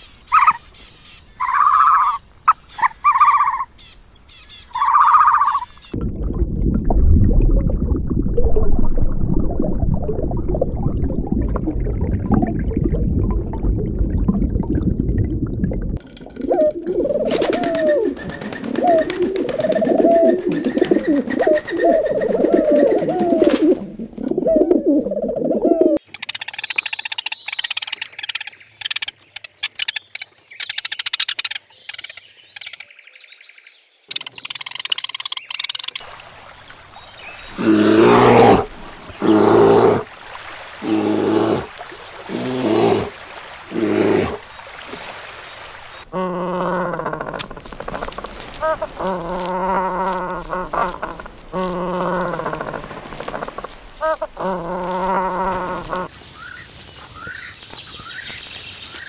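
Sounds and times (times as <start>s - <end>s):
low rumble: 6.0s - 16.0s
high chirps and clicks: 16.0s - 33.1s, 34.1s - 36.1s
pigeons cooing: 16.3s - 26.0s, 46.1s - 56.1s.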